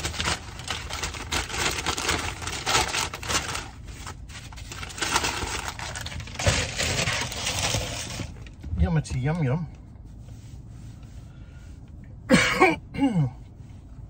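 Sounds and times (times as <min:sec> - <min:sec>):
paper bag rustling: 0:00.0 - 0:08.6.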